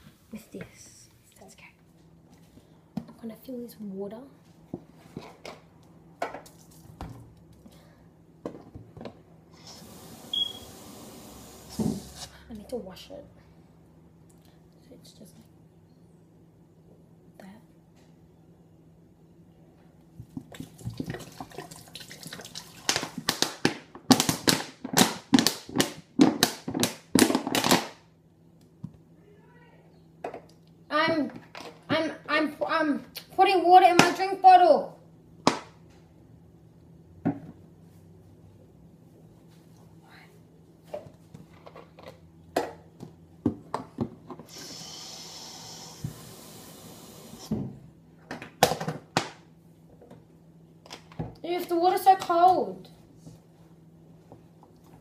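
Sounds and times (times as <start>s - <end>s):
water running at a sink: 20.6s - 23.0s
spray bottle squirting: 44.5s - 46.6s.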